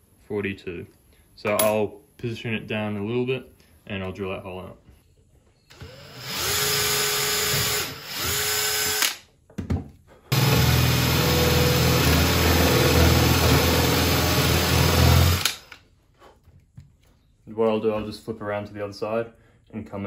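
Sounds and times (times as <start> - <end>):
drill boring into wood: 5.7 - 9.2, 10.3 - 15.8.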